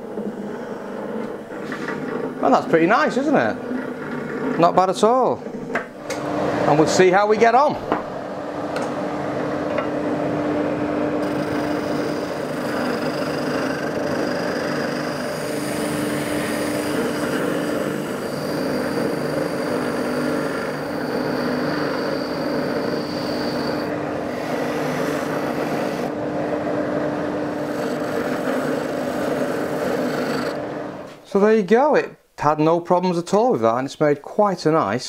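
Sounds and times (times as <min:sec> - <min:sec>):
sander motor hum: 0:11.2 - 0:26.6, 0:27.4 - 0:30.8
abrasive hissing on wood: 0:13.9 - 0:23.8.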